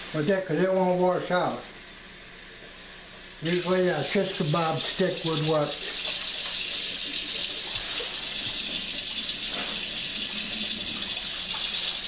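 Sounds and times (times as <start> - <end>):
faucet running into sink: 3.4 - 12.0.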